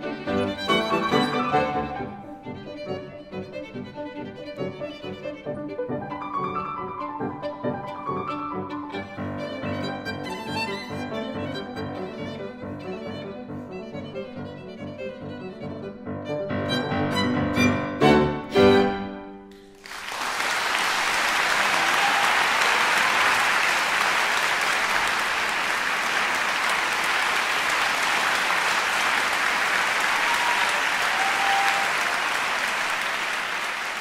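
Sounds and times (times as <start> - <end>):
violin and piano chords: 0.0 - 19.5
audience applause: 19.6 - 34.0.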